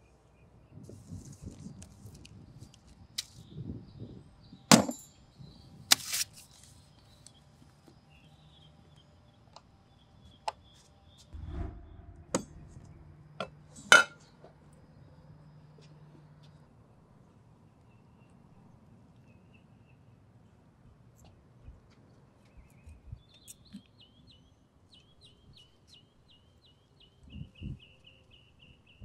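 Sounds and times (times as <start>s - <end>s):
low thud: 11.4s - 13.7s.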